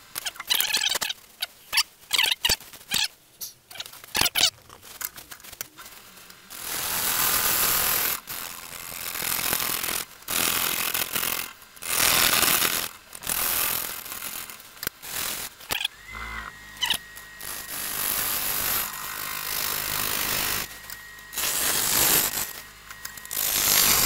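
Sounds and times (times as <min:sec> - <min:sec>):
gouge cutting wood on a lathe: 0:15.9 - 0:24.0.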